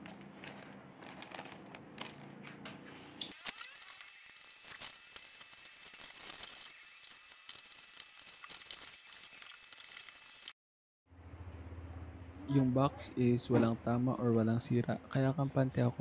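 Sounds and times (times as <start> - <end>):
bubble wrap crinkling: 0.0 - 2.4, 3.3 - 10.5
paper rustling: 0.0 - 10.5.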